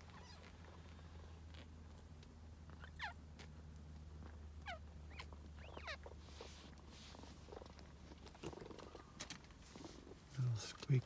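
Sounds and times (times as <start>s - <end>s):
kittens squeaking: 0.0s - 0.6s, 2.7s - 3.2s, 4.6s - 6.7s.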